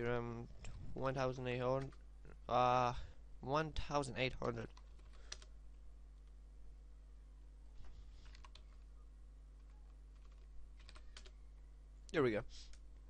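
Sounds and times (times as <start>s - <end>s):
low hum: 0.0s - 13.0s
keyboard keystrokes: 9.6s - 11.4s.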